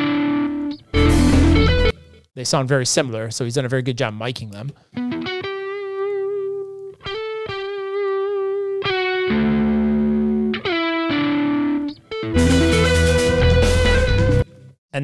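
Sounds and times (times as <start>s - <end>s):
distorted electric guitar notes: 0.0s - 2.2s, 5.0s - 14.7s.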